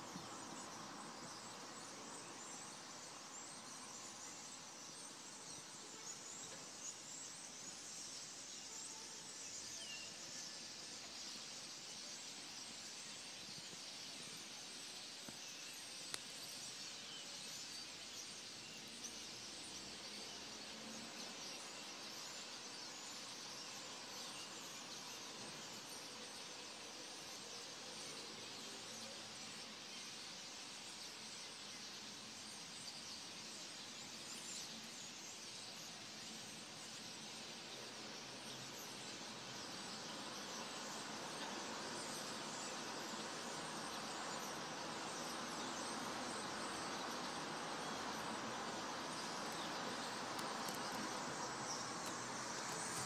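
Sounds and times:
birds and insects chirping: 0.0 - 53.0
faint steady hiss: 0.0 - 53.0.

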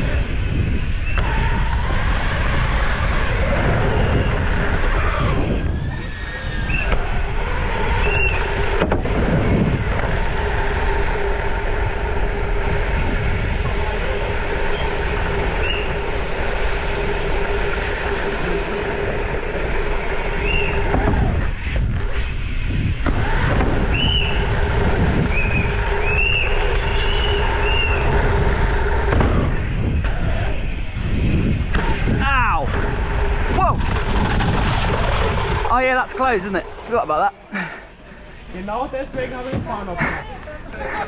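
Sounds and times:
bike tyres rolling: 0.0 - 41.0
wind rumble: 0.0 - 41.0.

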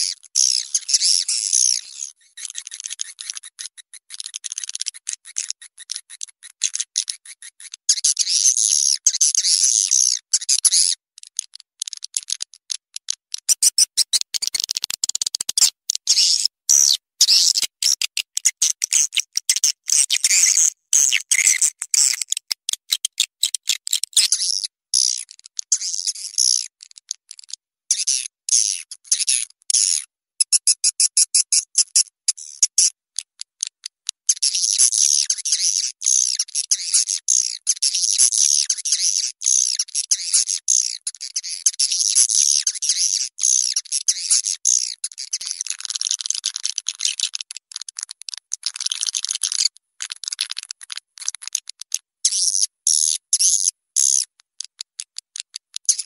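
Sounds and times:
swiftlets chirping and twittering: 13.5 - 24.6.

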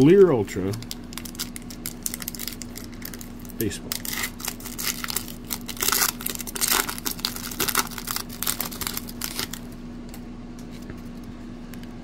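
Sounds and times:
faint steady hum: 0.0 - 12.0
foil wrapper crinkling and tearing: 0.5 - 9.7.

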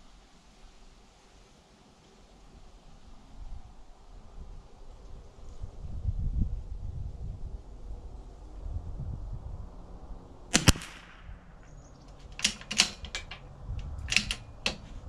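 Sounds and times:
rifle bolt clicking: 10.5 - 11.2, 12.1 - 15.0
rifle shot: 10.5 - 13.3.

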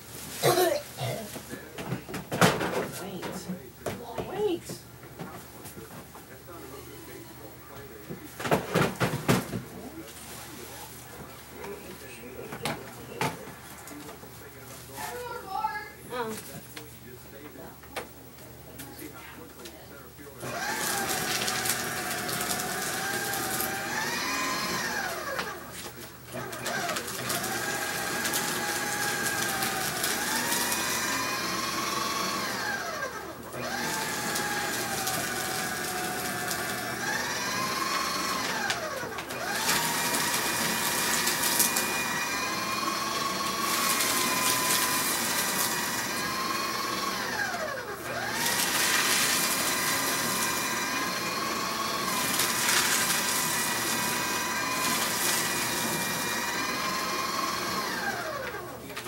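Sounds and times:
paper shredder running: 0.0 - 17.6, 18.7 - 59.0.

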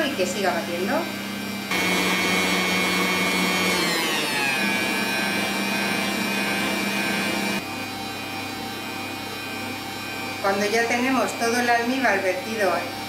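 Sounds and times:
stand mixer motor whining: 1.6 - 10.5.

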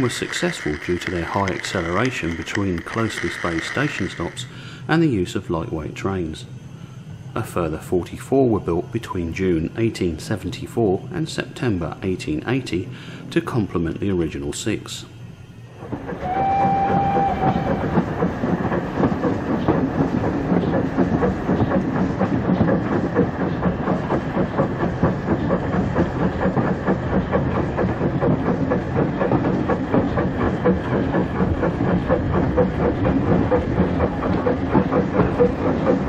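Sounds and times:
model train wheels and motor: 0.0 - 6.5, 7.3 - 36.0
whistle-like tone: 16.2 - 17.9.

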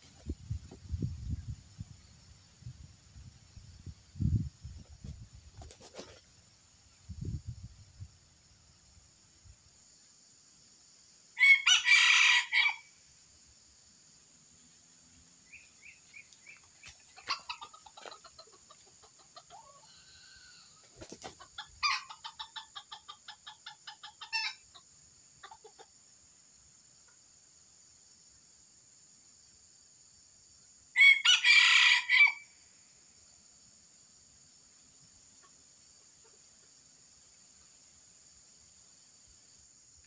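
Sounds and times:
rooster crowing: 11.4 - 12.9, 31.0 - 32.5
rooster clucking: 16.7 - 25.9.

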